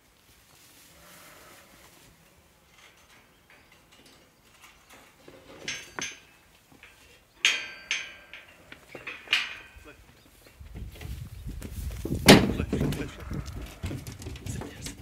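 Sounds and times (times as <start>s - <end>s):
sheep bleating: 12.9s - 14.1s.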